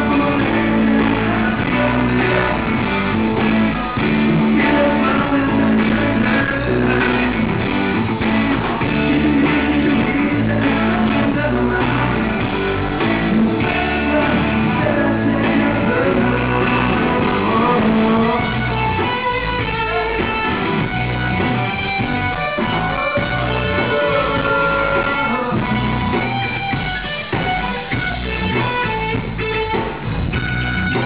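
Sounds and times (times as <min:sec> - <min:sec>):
person singing: 0:00.0 - 0:03.1, 0:03.9 - 0:20.5, 0:22.2 - 0:26.2
live rock band playing: 0:00.0 - 0:31.0.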